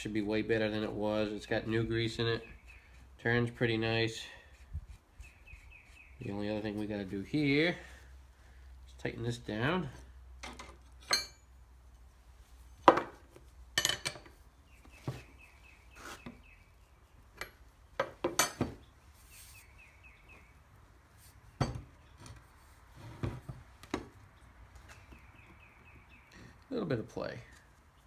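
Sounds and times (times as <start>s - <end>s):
metal clanks and knocks: 17.4s - 18.8s.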